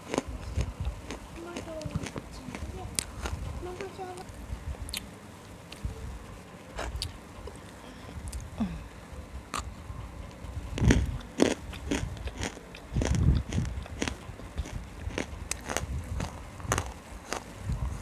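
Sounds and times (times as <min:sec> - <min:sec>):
crunching hard food: 0:00.0 - 0:03.9, 0:10.7 - 0:18.0.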